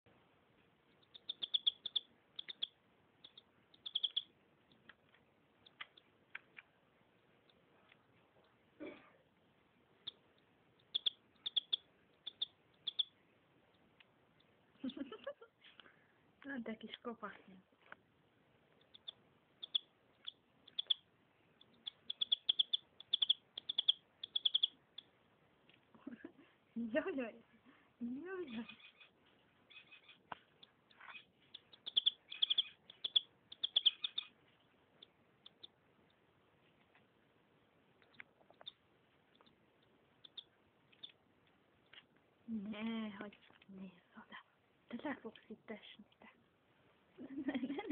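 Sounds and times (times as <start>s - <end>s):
canary chirping: 0.6s - 8.8s, 9.8s - 15.8s, 18.4s - 25.4s, 28.0s - 42.2s.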